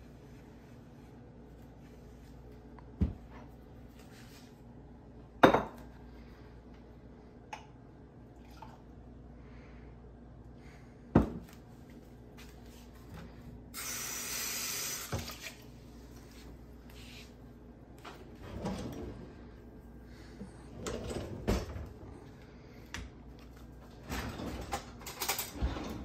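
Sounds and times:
kitchen tap running: 13.8s - 15.7s.

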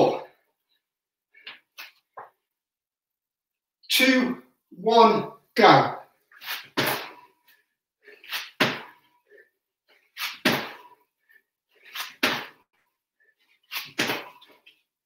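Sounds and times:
feet thudding on floor: 8.4s - 9.0s, 10.2s - 10.8s, 12.0s - 12.6s.

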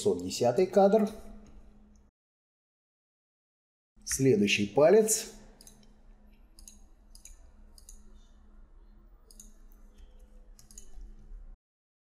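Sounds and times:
low steady hum: 0.0s - 2.1s, 4.0s - 11.6s
computer mouse clicking: 5.6s - 8.3s, 9.2s - 11.3s.

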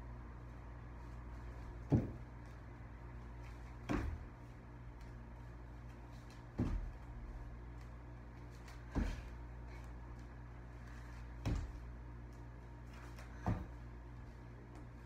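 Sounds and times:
bare feet thudding on wooden floor: 1.8s - 2.5s, 3.5s - 4.4s, 6.3s - 7.3s, 8.7s - 9.4s, 11.2s - 12.0s, 12.9s - 13.9s.

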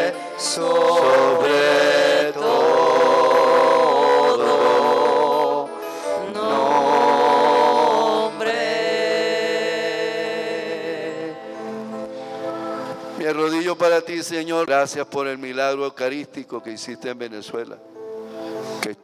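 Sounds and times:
slow church hymn singing: 0.0s - 14.0s.

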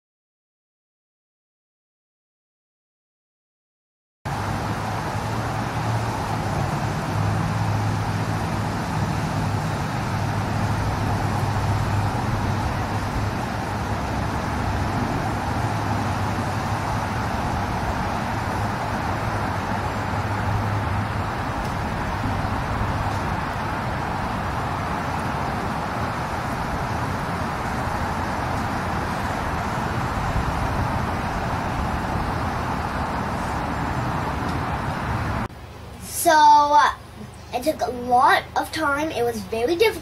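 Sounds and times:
quadcopter propellers buzzing: 4.3s - 35.5s
outdoor rush: 4.3s - 40.0s
low hum: 4.4s - 35.5s.

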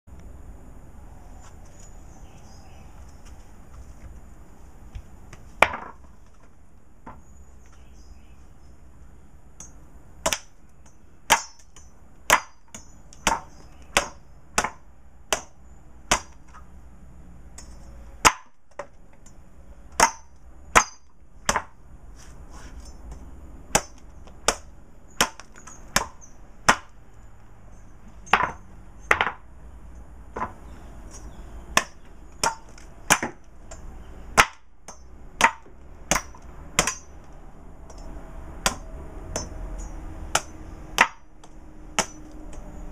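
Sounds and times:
machete chopping coconut husk: 9.6s - 16.7s, 17.6s - 19.0s, 19.9s - 27.0s, 30.4s - 37.3s, 37.9s - 42.8s.

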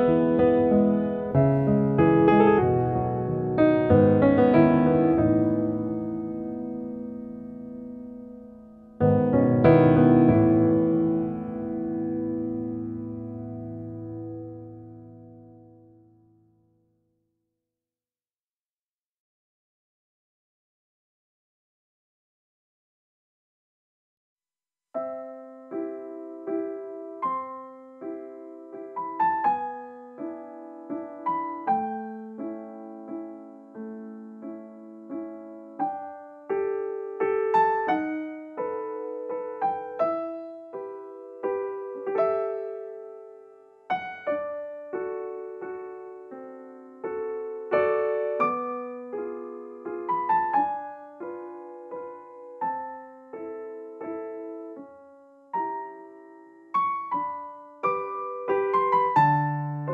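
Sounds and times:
slow solo piano music: 0.0s - 16.8s, 25.0s - 59.9s.

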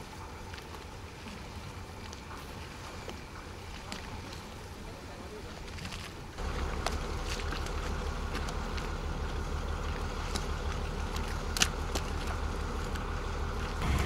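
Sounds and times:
diesel engine idling: 6.4s - 14.0s.

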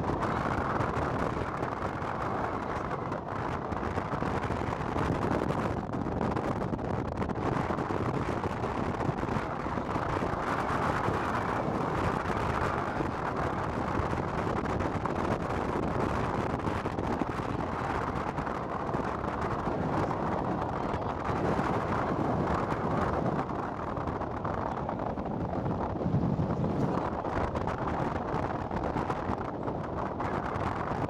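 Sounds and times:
car road and wind noise: 0.0s - 31.0s.

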